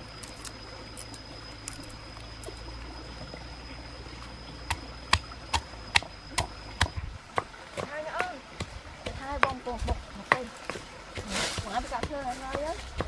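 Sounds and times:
stream trickling: 0.0s - 13.0s
pestle pounding in stone mortar: 5.1s - 13.0s.

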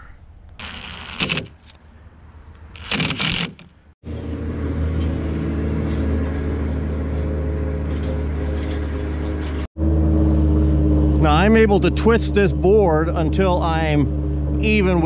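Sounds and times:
impact driver driving screw: 0.6s - 1.8s, 2.8s - 3.7s
steady engine drone: 4.0s - 15.0s.

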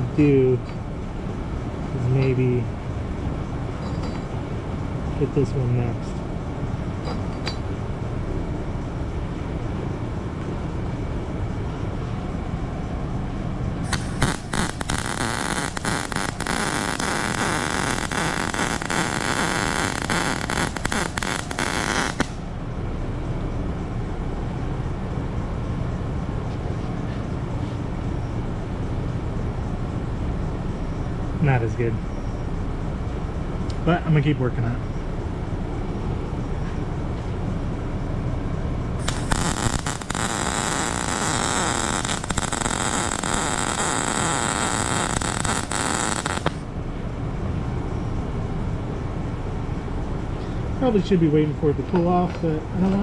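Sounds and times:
low shop hum: 0.0s - 53.0s
welder arc crackling sizzle: 13.9s - 22.4s, 39.0s - 46.6s.

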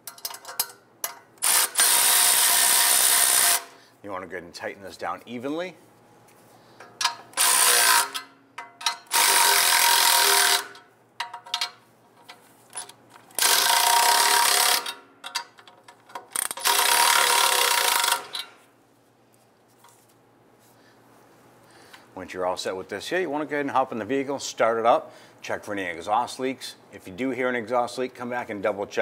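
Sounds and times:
powered ratchet whirring: 1.4s - 3.8s, 7.3s - 8.3s, 9.1s - 10.8s, 13.3s - 15.0s, 16.4s - 18.4s.

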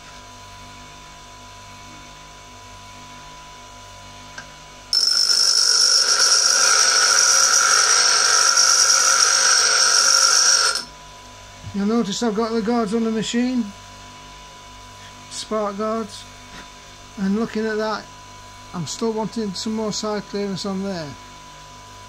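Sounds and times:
bench grinder humming: 4.9s - 10.9s
grinding hiss with high ringing: 4.9s - 11.0s.

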